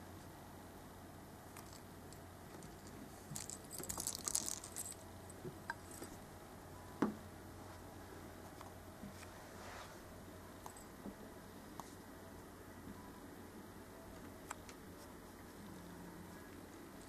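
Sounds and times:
toy jingling and rattling: 2.6 - 5.1.

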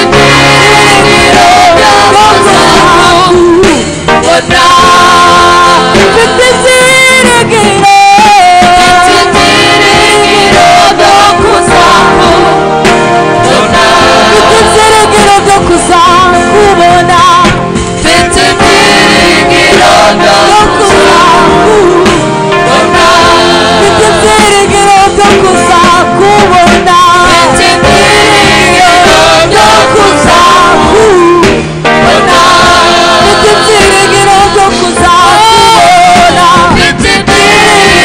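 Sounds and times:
group singing gospel song: 0.0 - 38.0.

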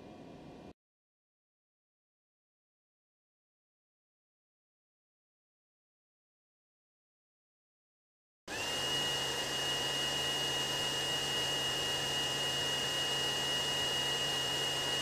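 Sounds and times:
laser engraver whining: 8.5 - 15.0.

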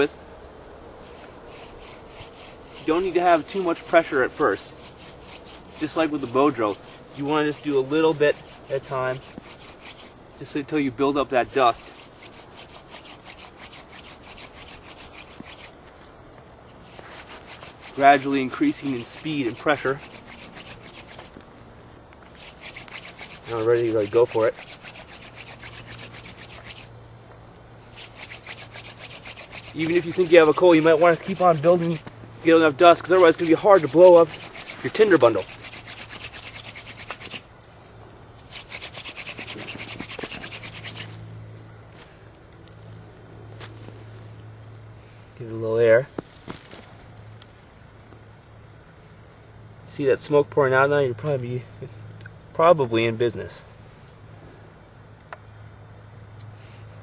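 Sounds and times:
wood rasping on wood: 1.0 - 10.2, 11.3 - 15.8, 16.8 - 21.4, 22.3 - 26.9, 27.9 - 37.5, 38.4 - 41.1
wooden spindle grinding in fireboard: 1.0 - 10.2, 16.8 - 21.4, 22.3 - 26.9, 27.9 - 32.1, 32.8 - 37.5, 38.4 - 41.1.

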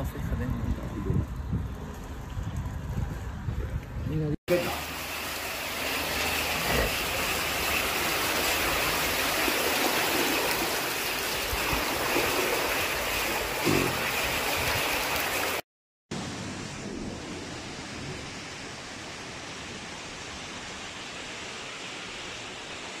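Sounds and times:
floodwater rushing: 4.5 - 15.6.

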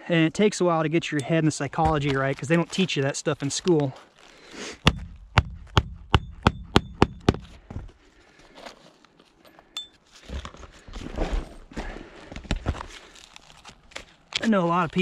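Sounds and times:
scuffing and rustling on shingles: 1.4 - 5.7, 7.4 - 15.0
hatchet striking roofing nails: 4.8 - 7.6.

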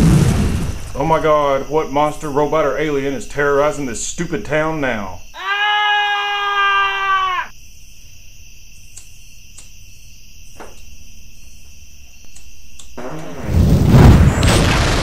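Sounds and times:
man screaming in falsetto: 5.4 - 7.5
faint clicks: 8.8 - 9.8, 12.2 - 13.0.

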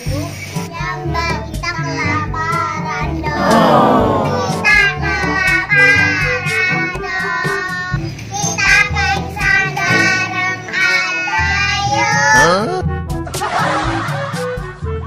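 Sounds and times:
girls singing together: 3.2 - 7.8, 8.6 - 12.2
backing music: 3.2 - 15.0.

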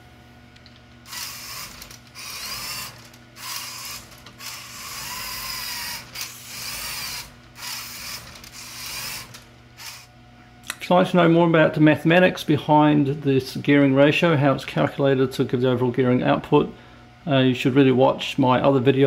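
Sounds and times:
toy car motor whirring and grinding: 1.1 - 10.1.

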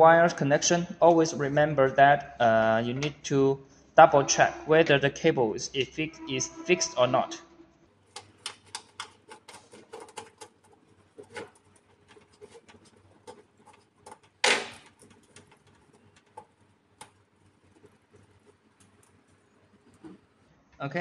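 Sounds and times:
plastic cable glands clicking: 8.1 - 17.2.

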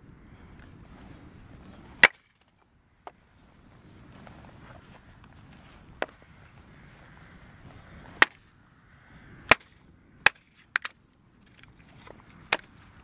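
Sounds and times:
axe splitting firewood: 2.0 - 2.5, 9.5 - 12.8.

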